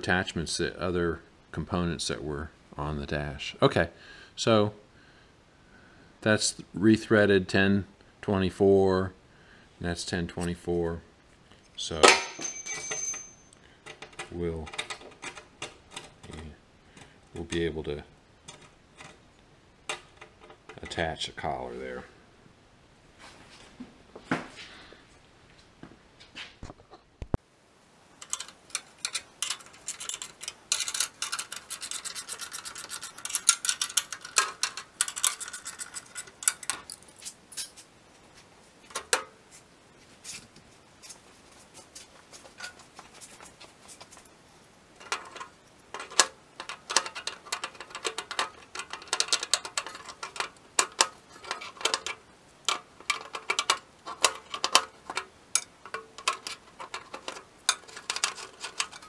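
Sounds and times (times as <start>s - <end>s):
scraping and rubbing on metal: 28.2s - 44.3s, 45.0s - 59.0s.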